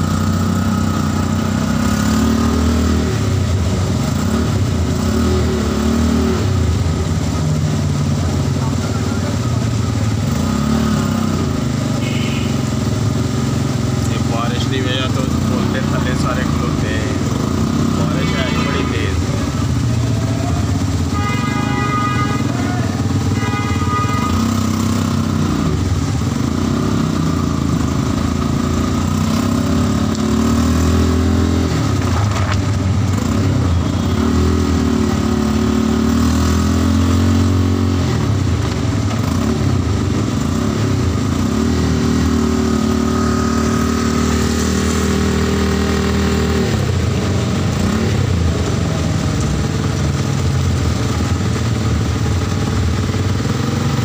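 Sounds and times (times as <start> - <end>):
auto-rickshaw engine running: 0.0 - 54.0
rain hiss: 43.6 - 54.0.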